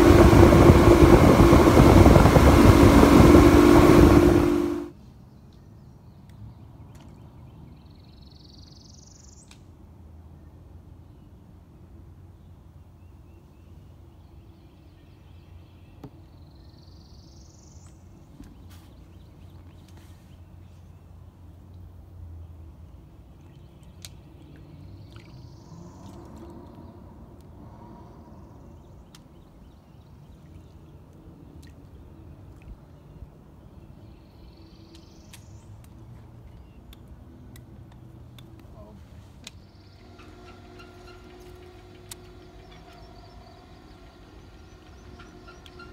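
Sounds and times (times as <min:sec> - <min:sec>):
steady low hum: 0:00.0 - 0:04.9, 0:35.7 - 0:45.9
low steady rumble: 0:00.0 - 0:05.0, 0:18.0 - 0:45.9.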